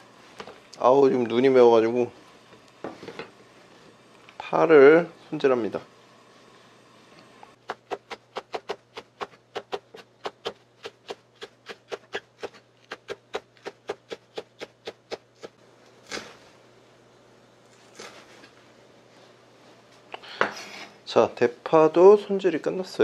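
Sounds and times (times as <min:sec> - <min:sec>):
knife chopping on wooden board: 0:07.6 - 0:15.5.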